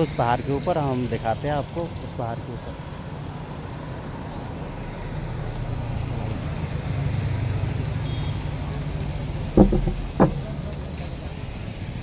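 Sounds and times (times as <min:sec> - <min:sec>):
car passing on road: 0:02.9 - 0:12.0.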